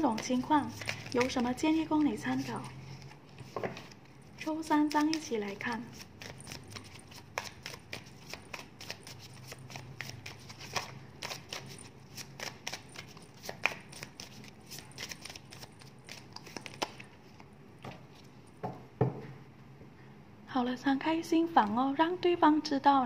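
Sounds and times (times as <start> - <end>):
cards clicking and rustling: 0.0 - 4.0, 4.8 - 5.4, 6.0 - 17.5.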